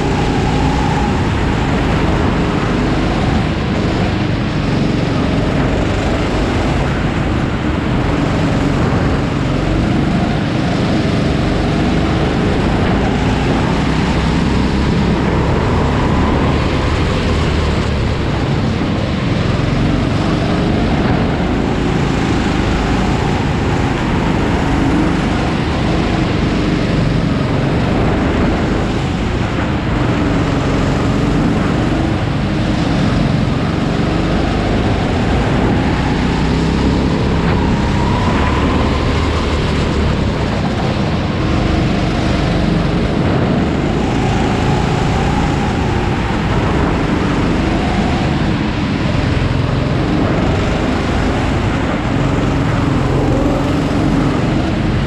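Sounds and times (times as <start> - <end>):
go-kart engine: 0.0 - 55.0
rush of noise: 0.0 - 55.0.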